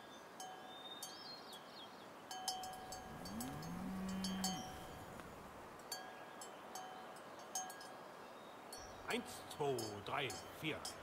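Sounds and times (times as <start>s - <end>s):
cowbells clanking: 2.3s - 5.2s, 8.8s - 11.0s
cow mooing: 2.9s - 5.5s.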